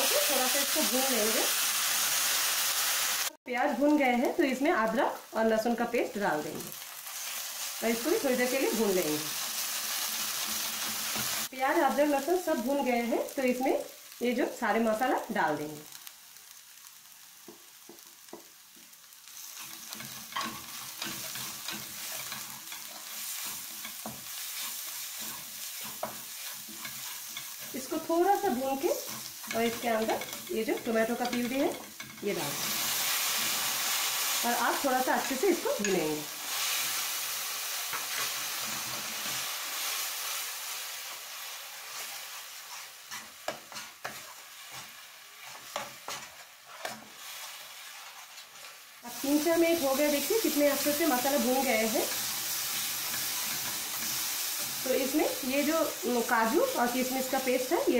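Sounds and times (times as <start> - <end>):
frying sizzle: 0.0 - 57.9
spatula scraping a pan: 19.3 - 34.4, 37.8 - 40.0, 41.8 - 48.9, 49.8 - 55.1.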